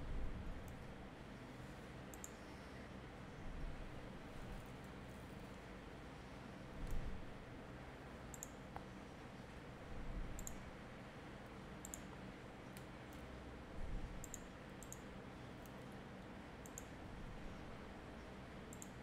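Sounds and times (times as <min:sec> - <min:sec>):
computer mouse clicks: 0:02.1 - 0:02.4, 0:08.2 - 0:08.9, 0:10.3 - 0:10.6, 0:11.8 - 0:13.3, 0:14.2 - 0:15.8, 0:16.6 - 0:17.0, 0:18.7 - 0:19.0.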